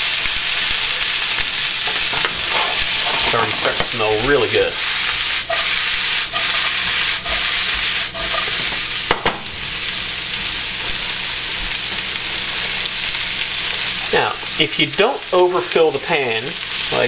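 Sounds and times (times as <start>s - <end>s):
vegetables sizzling in a skillet: 0.0s - 17.0s
pan knocking: 1.8s - 4.0s.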